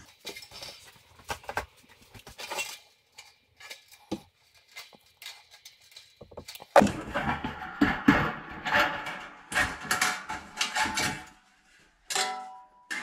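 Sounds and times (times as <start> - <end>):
pliers clicking and scraping metal: 2.3 - 6.8.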